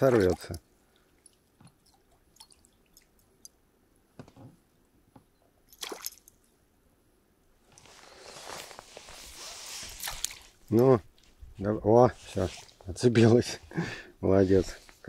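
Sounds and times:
water splashes and drips: 0.0s - 3.6s, 5.7s - 6.5s, 9.8s - 10.6s.

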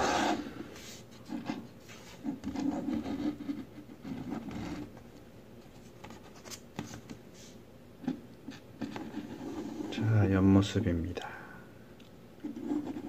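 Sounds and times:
scraping and rubbing on table: 0.0s - 4.9s, 6.0s - 10.0s, 12.4s - 13.0s.

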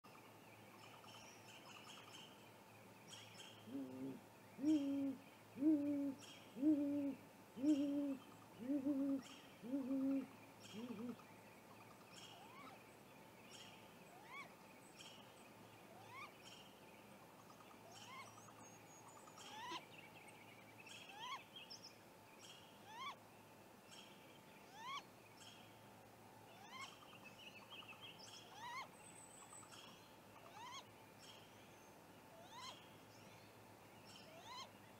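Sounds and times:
owl hooting deeply: 3.7s - 11.2s.

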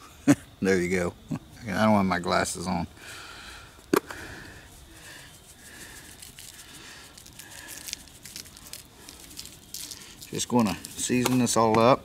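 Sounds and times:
seasoning granules pattering: 4.8s - 11.7s.

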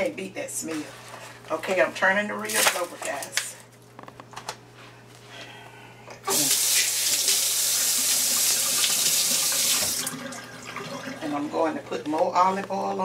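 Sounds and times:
water from tap running into sink: 6.3s - 11.2s.

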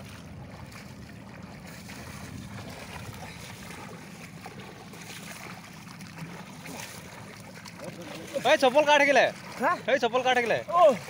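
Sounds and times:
wind rumble on microphone: 0.0s - 7.3s
water splashing from swimming: 0.0s - 11.0s.

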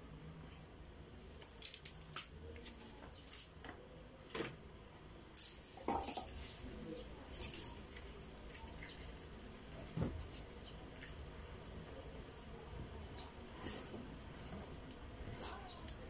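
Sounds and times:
faint low hum: 0.0s - 16.0s
small hard objects clicking: 5.3s - 6.7s.

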